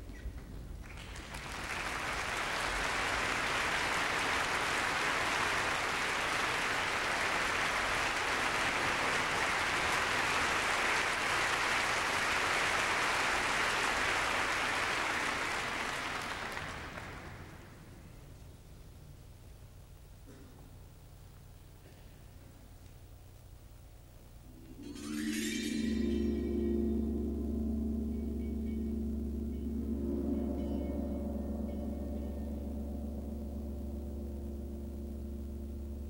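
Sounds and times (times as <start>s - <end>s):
audience applauding: 0.8s - 17.8s.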